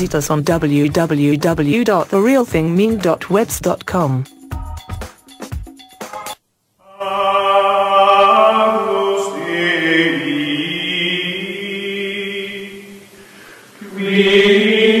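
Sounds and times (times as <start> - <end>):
choir chanting held notes: 6.8 - 13.2, 13.8 - 15.0.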